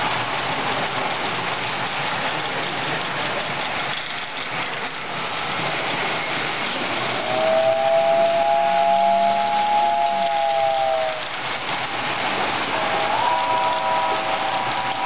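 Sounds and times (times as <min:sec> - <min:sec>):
toy train motors whirring: 0:00.0 - 0:15.0.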